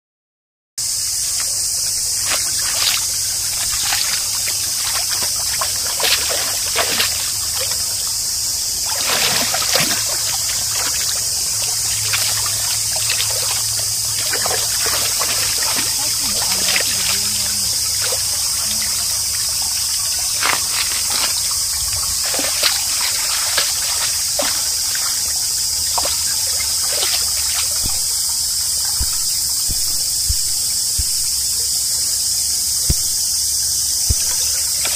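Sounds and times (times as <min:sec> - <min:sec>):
high-pitched insect drone: 0:00.8 - 0:34.9
stream trickling: 0:00.8 - 0:34.9
dog splashing and lapping water: 0:01.4 - 0:31.2, 0:34.1 - 0:34.9.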